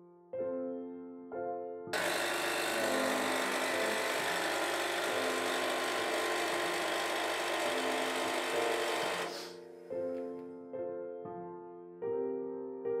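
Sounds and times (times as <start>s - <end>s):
espresso machine pump humming: 2.0s - 9.5s.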